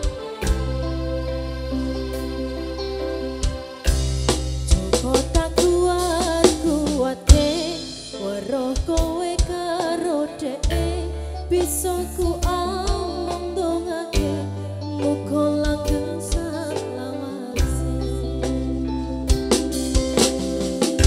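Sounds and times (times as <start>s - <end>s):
deep bass notes: 0.0s - 9.0s
keyboard: 0.0s - 21.0s
woman singing: 4.7s - 18.9s.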